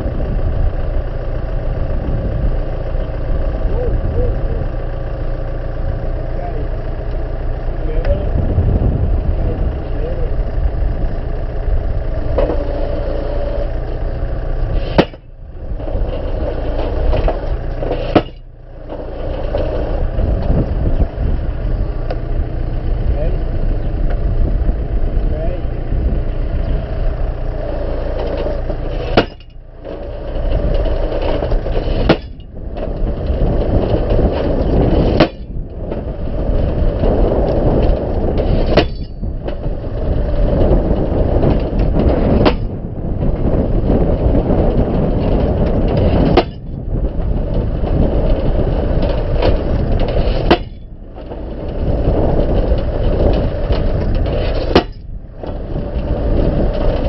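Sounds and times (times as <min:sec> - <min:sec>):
tractor engine running: 0:00.0 - 0:57.0
post driver hammering fence pole: 0:14.9 - 0:15.3, 0:29.1 - 0:29.6, 0:38.7 - 0:39.3, 0:46.4 - 0:46.7, 0:50.5 - 0:50.9, 0:54.6 - 0:55.6.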